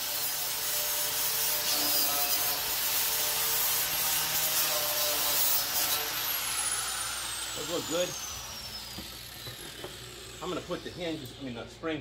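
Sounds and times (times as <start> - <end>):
angle grinder grinding steel: 0.0 - 11.8.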